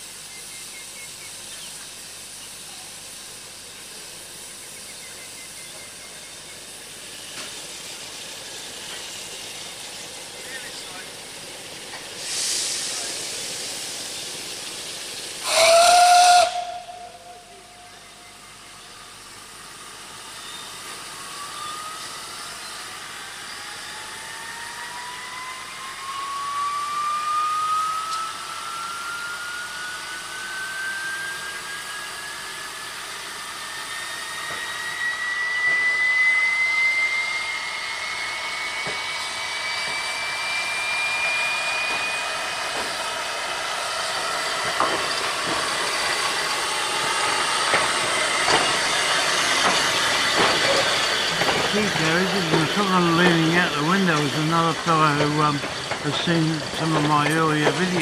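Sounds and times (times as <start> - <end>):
steam hissing: 0.0 - 58.0
steam whistle blast: 15.4 - 18.2, 24.3 - 32.4, 33.7 - 42.6.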